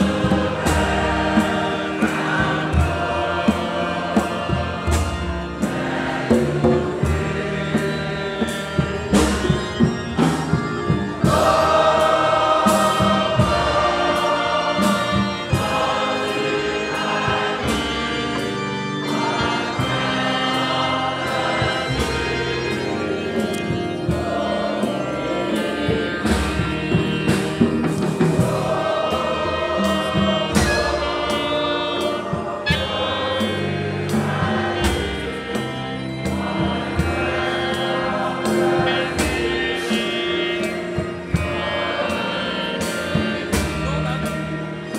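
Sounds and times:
conga drums and drum kit: 0.0s - 16.0s, 25.9s - 33.5s
choir singing a hymn: 0.0s - 44.9s
clarinet playing: 7.2s - 35.8s.

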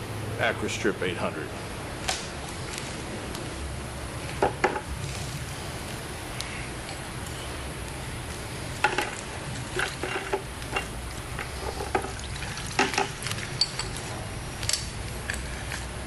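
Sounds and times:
liquid sloshing in a bucket: 9.0s - 14.0s.

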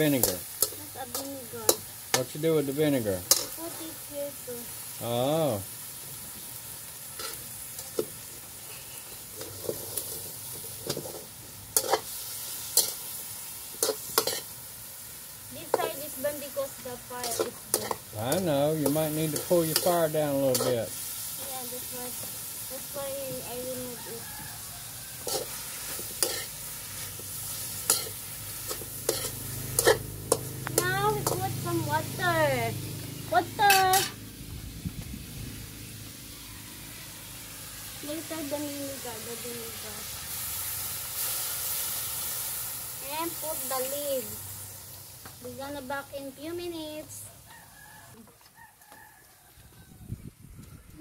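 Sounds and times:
metal spatula scraping a pan: 0.0s - 2.3s, 3.3s - 3.9s, 7.1s - 14.6s, 15.7s - 22.3s, 23.2s - 32.0s, 33.6s - 34.2s
food sizzling in a wok: 0.0s - 50.2s.

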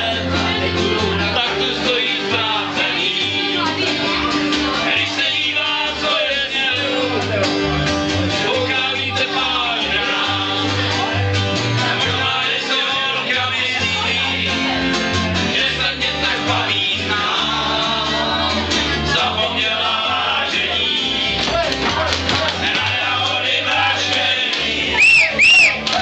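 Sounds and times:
person singing: 0.0s - 7.4s
plucked double bass: 0.0s - 25.0s
strummed acoustic guitar: 0.0s - 26.0s.

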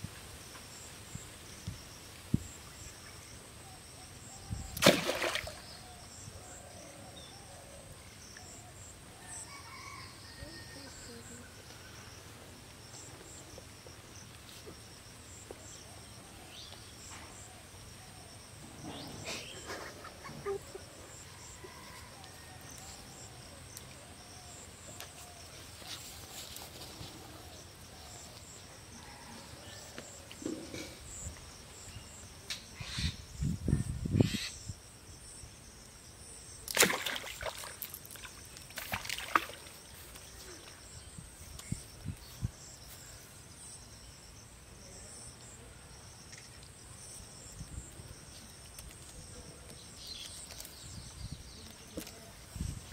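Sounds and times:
insects chirring: 0.0s - 52.9s
water splashing and sloshing: 4.8s - 5.7s, 36.7s - 40.2s.

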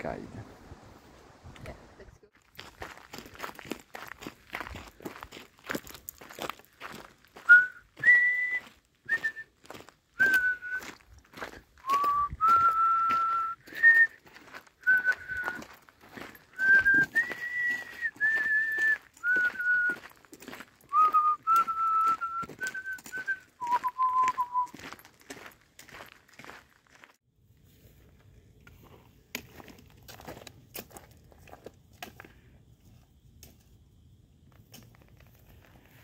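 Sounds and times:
footsteps on gravel: 2.3s - 32.5s, 34.5s - 36.0s
person whistling a tune: 7.4s - 9.6s, 10.2s - 11.0s, 11.8s - 14.2s, 14.8s - 15.7s, 16.5s - 20.1s, 20.9s - 24.8s.

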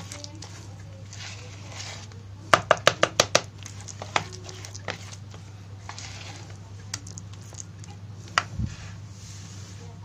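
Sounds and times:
plastic spoon tapping bowl: 2.5s - 5.2s.

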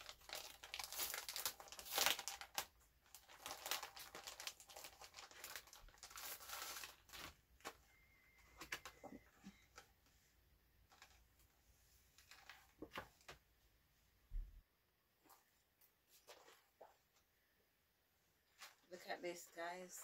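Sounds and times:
packaging rustling: 0.0s - 10.0s.

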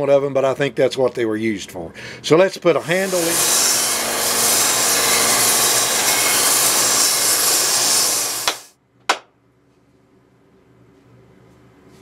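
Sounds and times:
power tool sanding wood: 2.7s - 8.7s.

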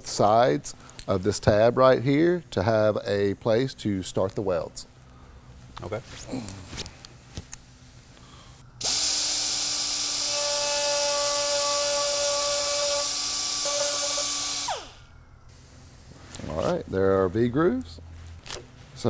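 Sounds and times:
air hiss: 7.8s - 16.4s
pneumatic die grinder whining: 8.8s - 15.1s.

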